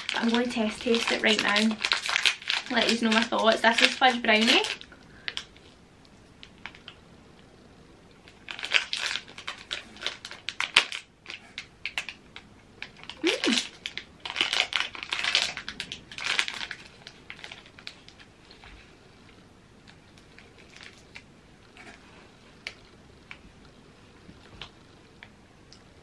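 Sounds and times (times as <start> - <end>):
plastic wrapper crinkling: 0.0 - 5.8, 6.4 - 7.0, 8.1 - 18.9, 19.8 - 21.9.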